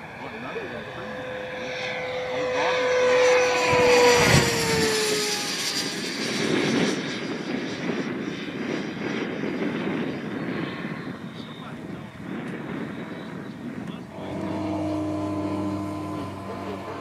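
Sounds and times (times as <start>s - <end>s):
model jet fan whining: 0.0s - 17.0s
rushing noise: 14.1s - 17.0s.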